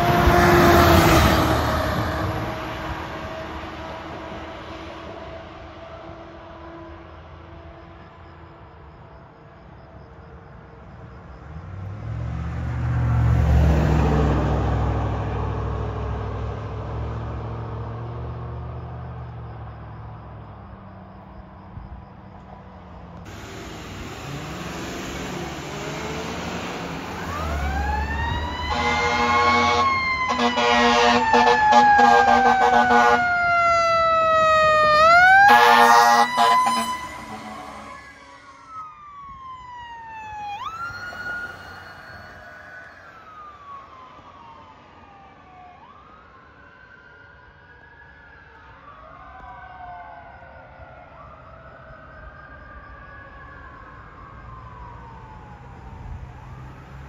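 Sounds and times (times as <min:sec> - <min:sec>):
fire truck horn blasts: 0:00.0 - 0:04.5, 0:28.5 - 0:33.9, 0:34.8 - 0:38.5
wailing siren: 0:00.0 - 0:20.5, 0:23.9 - 0:57.0.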